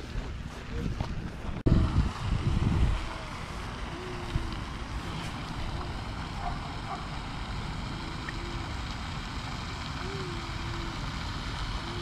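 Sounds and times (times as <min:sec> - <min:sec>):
wind buffeting microphone: 0:00.0 - 0:08.8.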